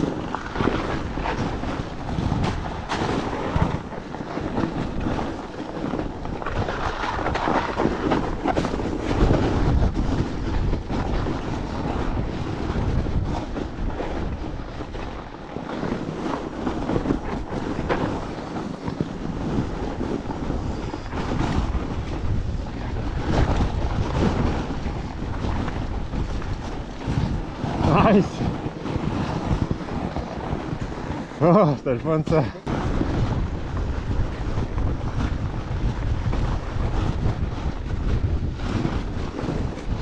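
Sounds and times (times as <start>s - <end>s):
bike knocking and rattling: 0.0s - 31.3s
bike riding over packed snow: 0.0s - 40.0s
wind on microphone: 0.0s - 40.0s.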